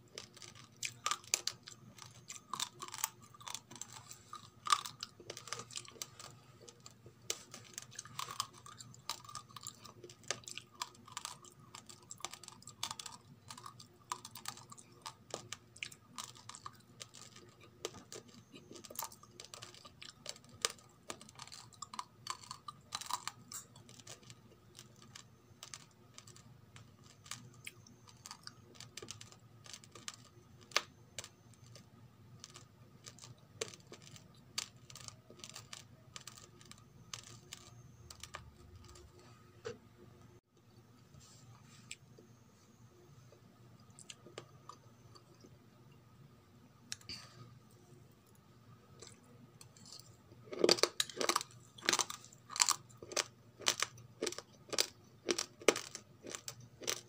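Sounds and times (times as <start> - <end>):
rice crunching between teeth: 0.0 - 39.2, 49.0 - 57.0.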